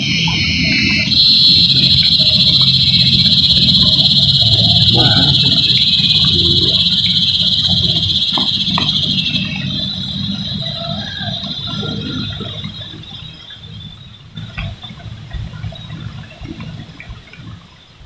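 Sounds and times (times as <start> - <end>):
steady low rumble: 0.0 - 13.5
loud high insect buzz: 1.1 - 12.8.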